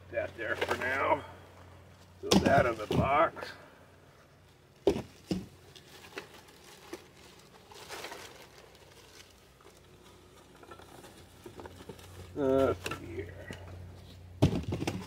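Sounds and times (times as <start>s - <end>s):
cardboard and plastic rustling: 0.3s - 1.2s, 2.2s - 3.5s, 4.8s - 15.0s
sharp knocks on packaging: 4.8s - 5.5s, 14.4s - 15.0s.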